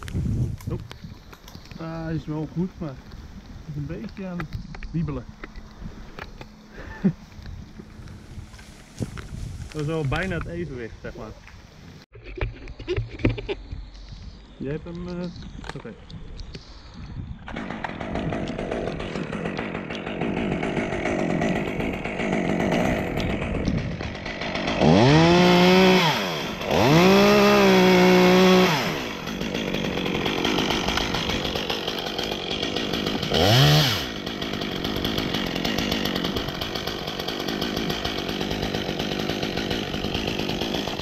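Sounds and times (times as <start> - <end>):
chainsaw idling and revving: 17.5 - 41.0.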